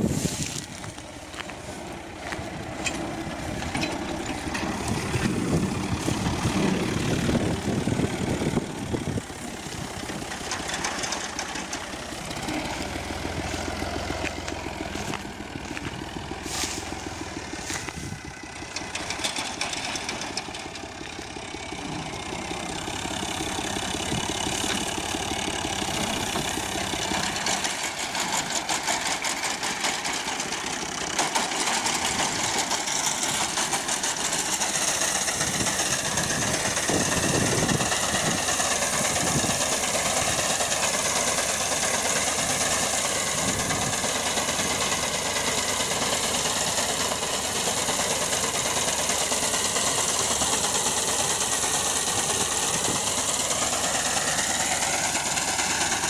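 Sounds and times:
tractor diesel engine running: 0.0s - 56.0s
reaper mechanical clatter: 9.8s - 12.8s, 17.6s - 20.8s.

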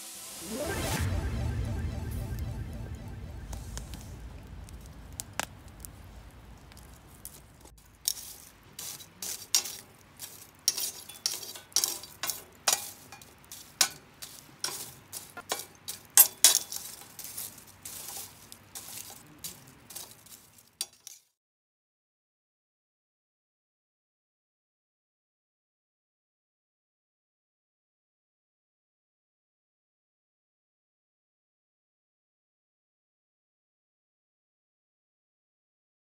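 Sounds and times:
wood fire crackling: 0.8s - 21.3s.

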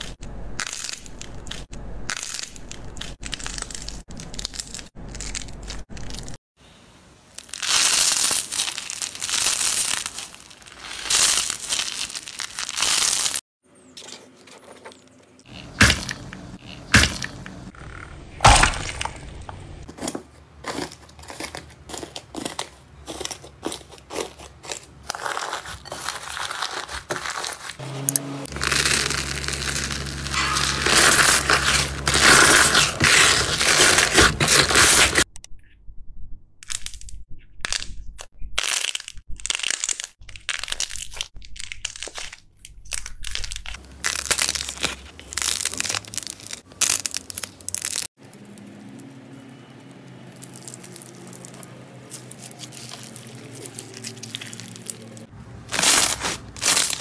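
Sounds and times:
slime crackling: 7.4s - 13.4s, 28.5s - 35.2s, 39.4s - 49.1s, 50.2s - 57.0s
hands squeezing sticky slime: 50.3s - 55.2s.

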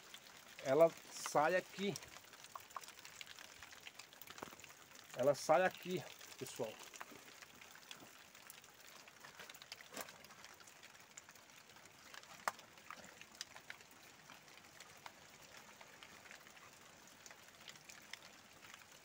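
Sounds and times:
water dripping: 0.0s - 19.0s.

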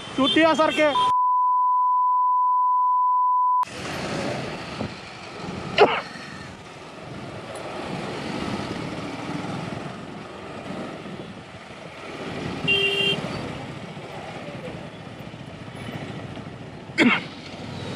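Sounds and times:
scooter and car engines: 3.6s - 17.9s
wind and road noise: 3.6s - 17.9s.

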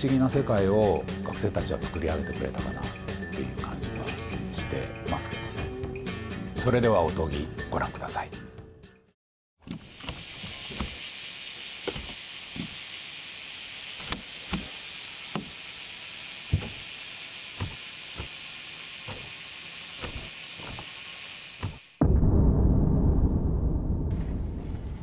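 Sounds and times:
sandal footsteps on wooden planks: 9.6s - 11.0s, 14.0s - 15.6s, 16.5s - 16.9s, 17.6s - 18.4s, 19.0s - 19.4s, 20.0s - 21.0s
insects droning: 9.6s - 22.0s.

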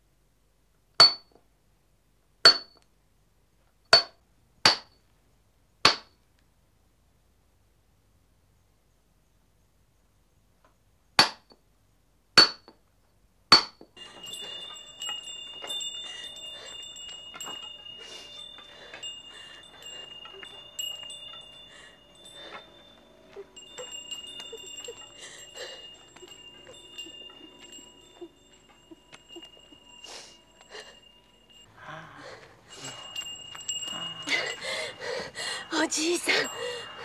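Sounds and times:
hammer striking chisel on stone: 1.0s - 1.4s, 2.4s - 2.8s, 3.9s - 5.0s, 5.8s - 6.2s, 12.4s - 12.8s, 13.5s - 13.9s
hand bell jingling: 14.0s - 37.0s.

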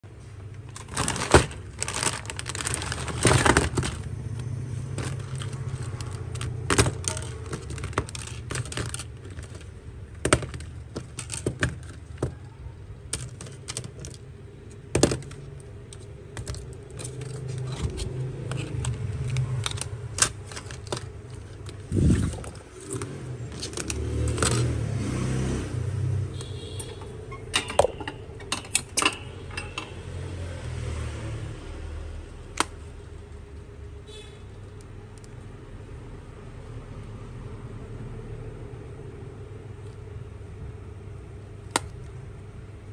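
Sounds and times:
plastic and metal clicks and scrapes: 0.6s - 24.8s
low steady hum: 25.6s - 42.9s.

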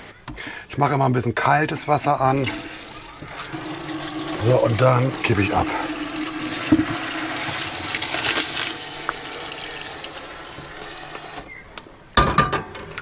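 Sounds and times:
water pouring through colander: 2.3s - 11.5s
tap running into sink: 2.4s - 11.4s.

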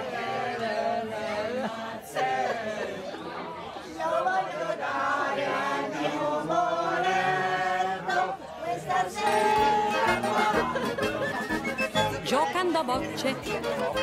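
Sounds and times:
group of people singing: 0.0s - 11.2s.

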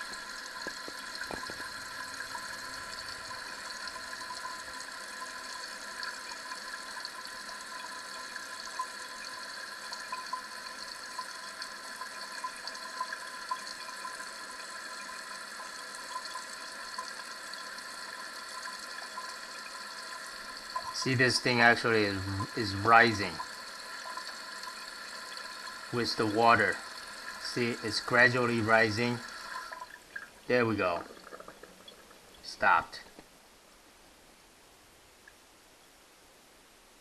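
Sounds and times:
toilet tank refilling: 0.0s - 32.5s.

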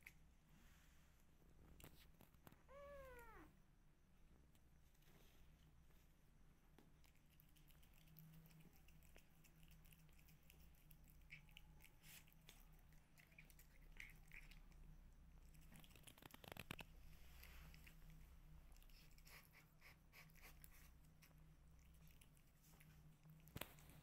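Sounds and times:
soft rustles: 0.0s - 3.6s, 4.5s - 7.0s, 15.6s - 19.2s.

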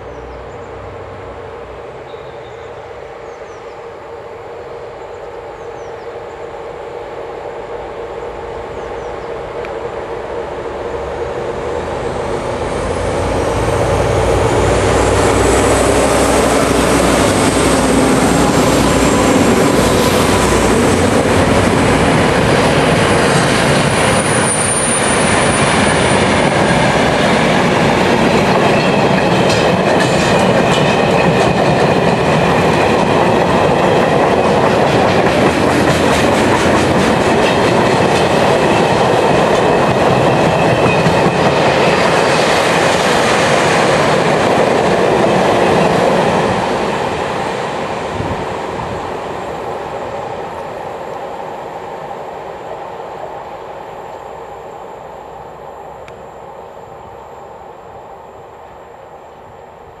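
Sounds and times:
freight train rolling past: 0.0s - 60.0s.

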